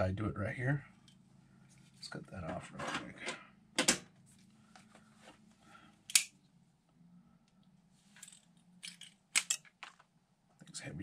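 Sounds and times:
handling of rifle parts: 8.0s - 10.2s.

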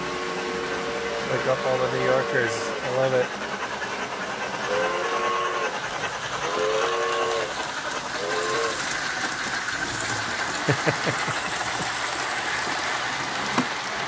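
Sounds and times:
model steam locomotive whistle: 0.0s - 3.2s, 4.7s - 5.8s, 6.4s - 7.6s, 8.2s - 8.9s
model train rolling on track: 0.0s - 14.0s.

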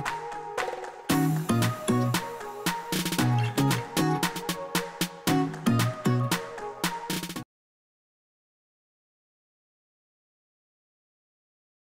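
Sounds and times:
upbeat background music: 0.0s - 7.4s.

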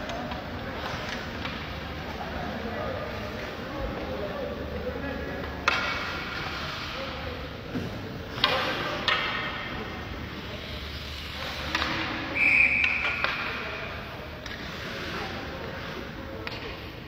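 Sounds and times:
hockey sticks and puck knocking: 0.0s - 2.0s, 5.4s - 7.0s, 7.7s - 9.9s, 11.2s - 14.8s, 16.4s - 16.9s
high whistle blowing: 12.4s - 13.2s.

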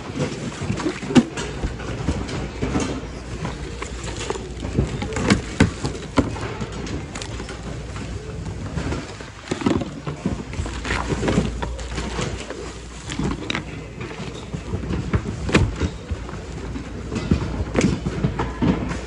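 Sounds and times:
hard items knocking and clattering: 0.0s - 19.0s
plastic bags and fabric rustling: 0.0s - 19.0s.

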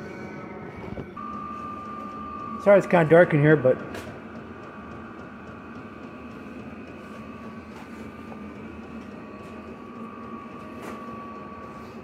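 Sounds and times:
thin high whine: 0.0s - 4.1s
heater blower hum: 0.0s - 12.0s.

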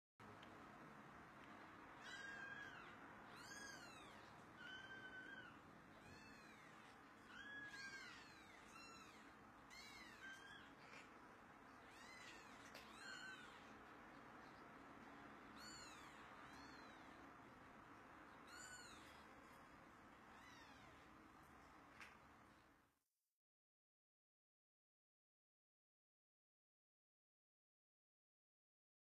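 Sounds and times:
kittens mewing: 2.0s - 17.6s, 18.3s - 19.6s.

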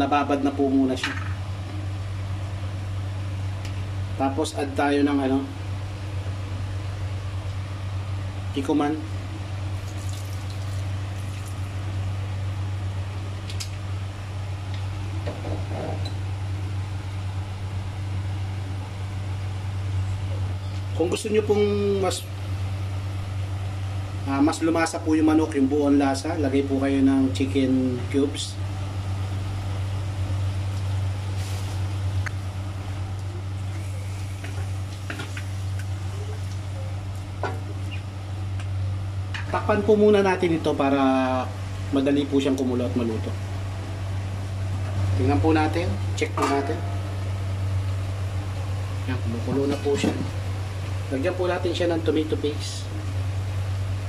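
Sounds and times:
fan motor humming: 0.0s - 54.0s.

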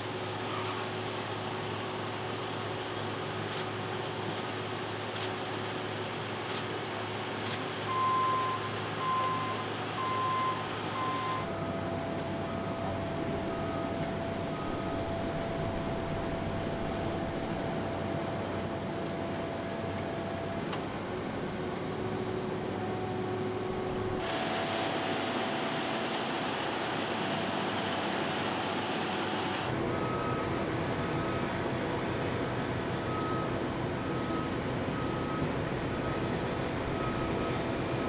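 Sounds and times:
reversing alarm beeping: 7.9s - 20.5s, 29.8s - 32.2s, 33.0s - 38.0s
heavy machinery drone: 10.3s - 38.0s.

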